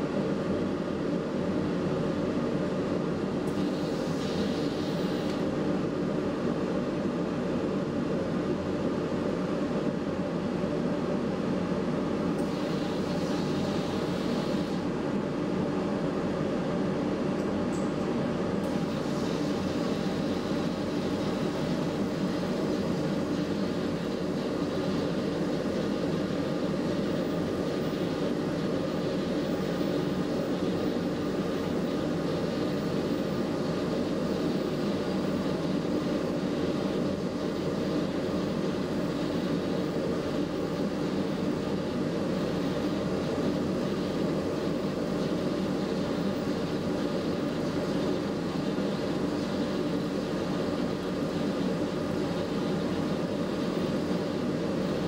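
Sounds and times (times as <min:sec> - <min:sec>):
extraction fan rushing air: 0:00.0 - 0:55.0
high air hiss: 0:03.5 - 0:05.5, 0:12.4 - 0:15.0, 0:18.7 - 0:55.0.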